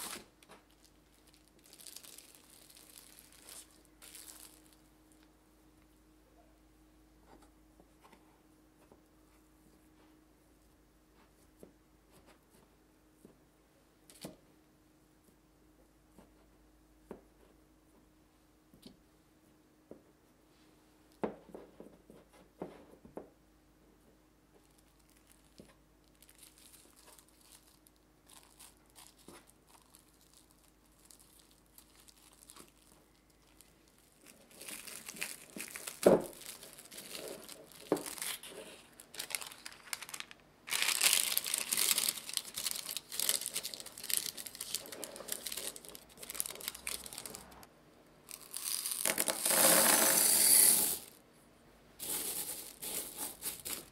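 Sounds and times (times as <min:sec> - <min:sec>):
cling film crinkling and tearing: 0:00.0 - 0:04.8, 0:24.7 - 0:47.7, 0:48.3 - 0:49.5
paper crumpling: 0:00.0 - 0:04.8, 0:24.6 - 0:47.7, 0:48.3 - 0:49.7, 0:52.0 - 0:53.9.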